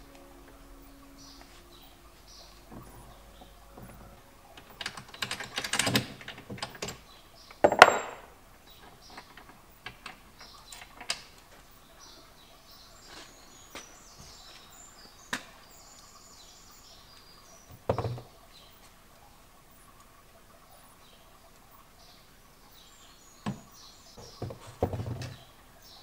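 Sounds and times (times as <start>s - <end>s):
metal ticks: 2.7s - 8.0s, 8.7s - 11.5s
metal tool clicking and clattering: 4.6s - 8.3s.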